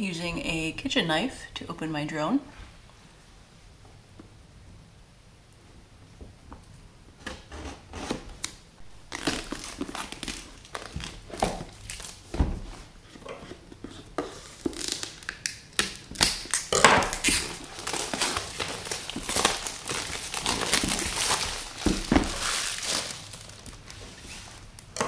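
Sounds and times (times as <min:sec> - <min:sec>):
plastic shrink-wrap crinkling and tearing: 0:08.8 - 0:12.3, 0:14.3 - 0:25.0.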